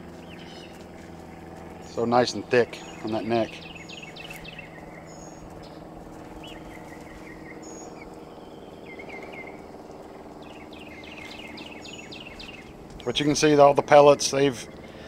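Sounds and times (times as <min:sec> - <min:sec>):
steady low hum: 0:00.0 - 0:15.0
chicks chirping: 0:02.7 - 0:13.3.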